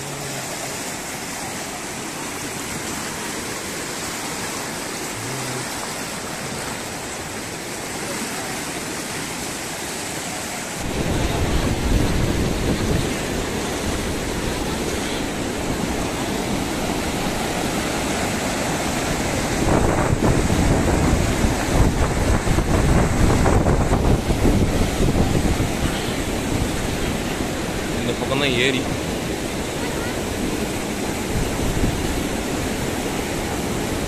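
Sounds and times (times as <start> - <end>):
floodwater rushing: 0.0 - 34.0
wind buffeting microphone: 10.8 - 18.1, 18.9 - 27.8.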